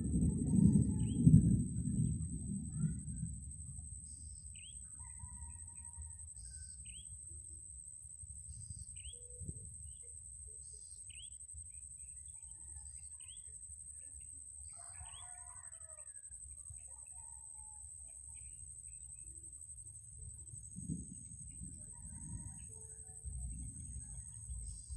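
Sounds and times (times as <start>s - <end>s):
low rumble: 0.0s - 5.6s, 18.4s - 24.9s.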